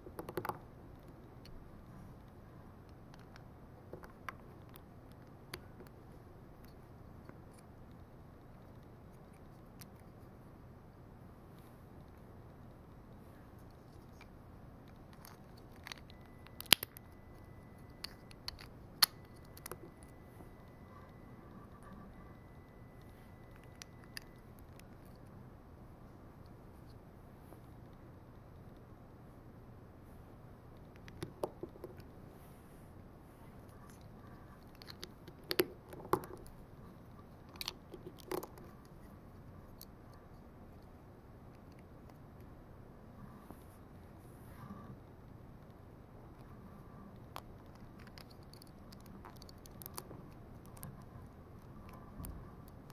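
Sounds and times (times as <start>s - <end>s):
light handling ticks: 33.5s - 42.5s, 45.6s - 52.9s.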